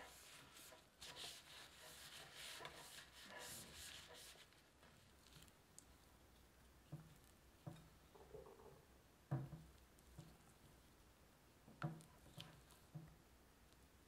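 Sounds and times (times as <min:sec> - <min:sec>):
batter squishing: 0:00.0 - 0:06.2, 0:11.8 - 0:13.9.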